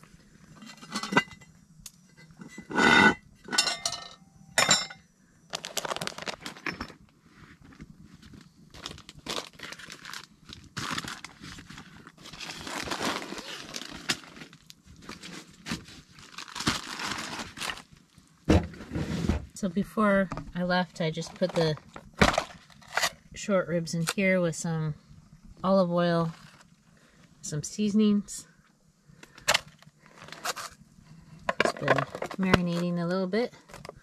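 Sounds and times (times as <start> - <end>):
metal cookware clinking: 2.2 - 5.0.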